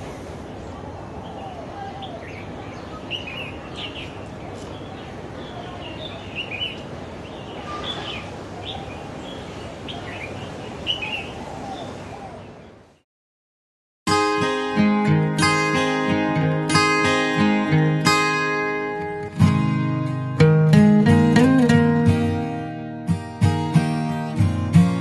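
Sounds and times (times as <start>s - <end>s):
low background noise: 0.0s - 13.0s.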